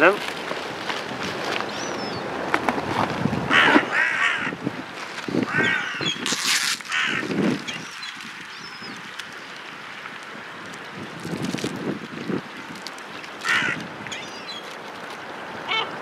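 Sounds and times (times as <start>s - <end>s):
gulls calling: 3.5s - 4.6s, 5.4s - 9.6s, 13.2s - 14.7s, 15.6s - 16.0s.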